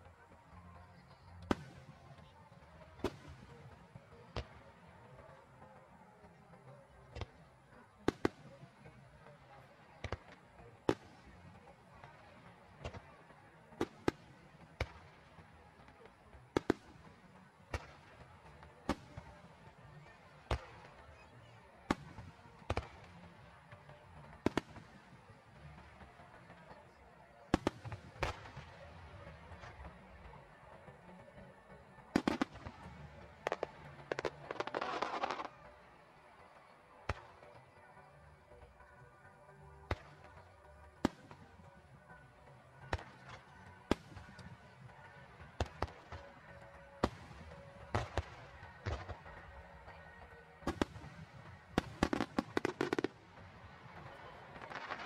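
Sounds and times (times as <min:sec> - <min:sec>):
fireworks crackling: 0:00.0 - 0:55.0
fireworks bangs: 0:21.8 - 0:37.7, 0:39.8 - 0:55.0.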